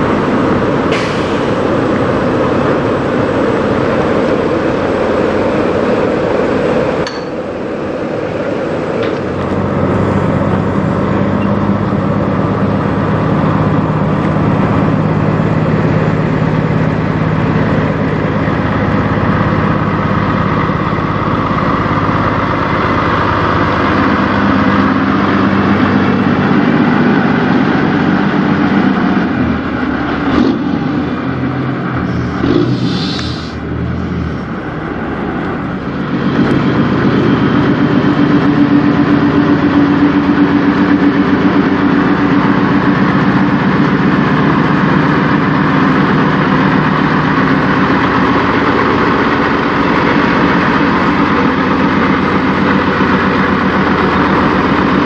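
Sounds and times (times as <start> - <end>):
diesel truck engine idling: 0.0 - 55.0
brief hiss: 32.7 - 33.6.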